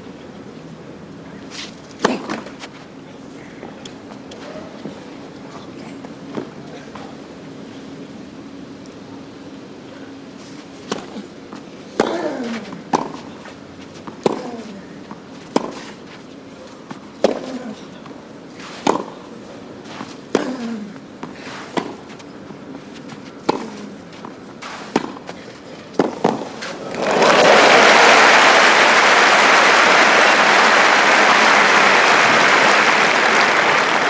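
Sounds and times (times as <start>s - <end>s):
tennis ball hit with racket: 1.6s - 2.7s, 14.0s - 14.8s, 15.5s - 15.9s, 16.9s - 17.8s, 18.6s - 19.2s, 23.0s - 26.8s
applause: 26.9s - 34.0s.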